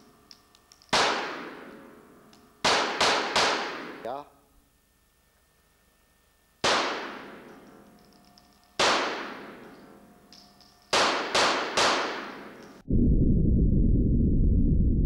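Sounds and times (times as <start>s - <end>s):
pistol shots echoing indoors: 0.7s - 4.2s, 6.6s - 12.8s.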